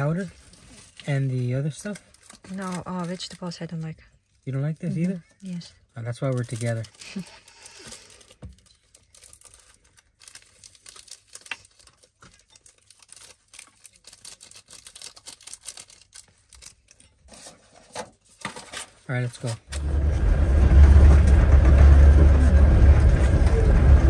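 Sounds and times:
sachets tearing and crinkling: 0.0s - 5.2s, 6.0s - 17.0s.

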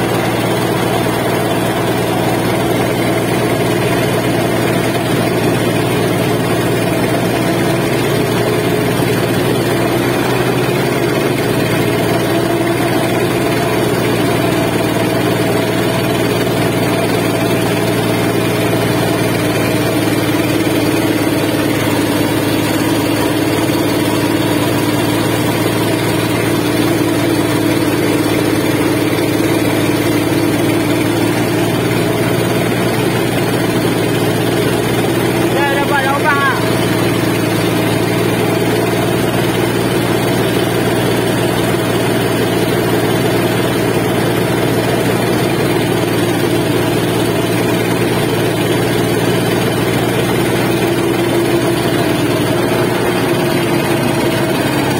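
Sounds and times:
boat engine running: 0.0s - 54.9s.

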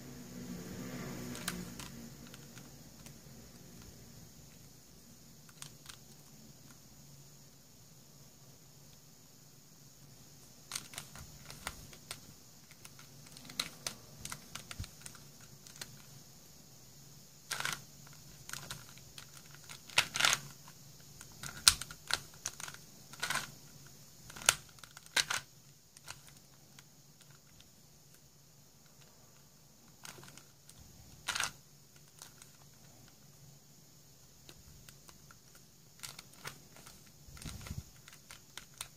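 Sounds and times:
plastic puzzle clicking: 1.3s - 3.2s, 5.4s - 6.8s, 10.7s - 16.1s, 17.5s - 28.2s, 29.9s - 33.2s, 34.4s - 38.9s.

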